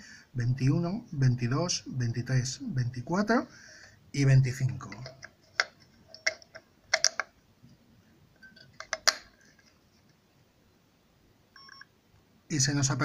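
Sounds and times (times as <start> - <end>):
batteries clicking into plastic compartment: 4.9 - 7.3.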